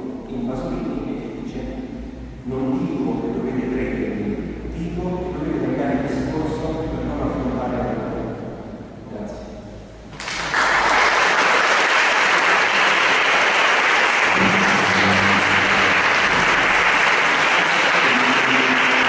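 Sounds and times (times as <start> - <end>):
audience applause: 10.2 - 19.0.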